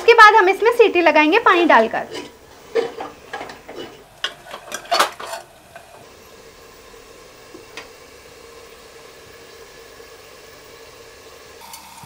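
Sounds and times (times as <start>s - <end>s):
faint sizzle of frying: 0.0s - 12.0s
ladle scraping metal pot: 1.6s - 6.0s.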